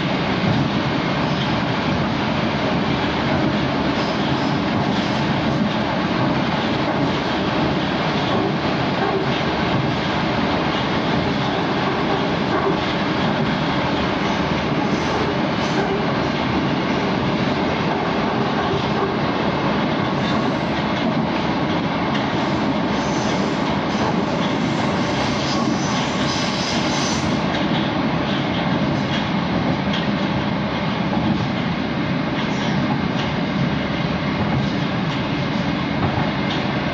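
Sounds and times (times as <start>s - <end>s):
metro train rumbling on rails: 0.0s - 36.9s
sharp hiss: 24.6s - 27.4s.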